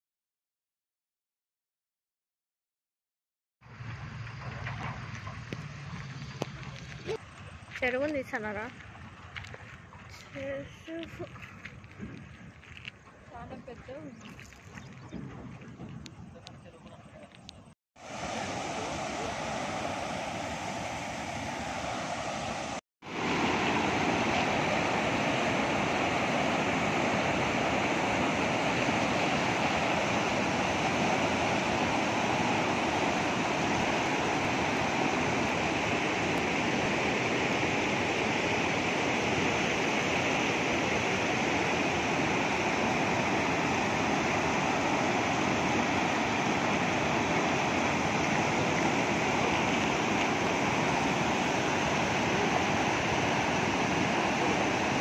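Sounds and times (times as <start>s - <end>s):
water rushing over rocks: 18.0s - 55.0s.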